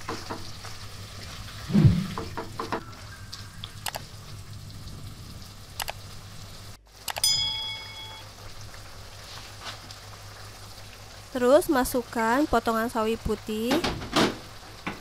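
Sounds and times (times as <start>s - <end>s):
broth simmering in a wok: 0.0s - 1.7s, 2.3s - 15.0s
click and bell-like chime: 7.1s - 8.3s.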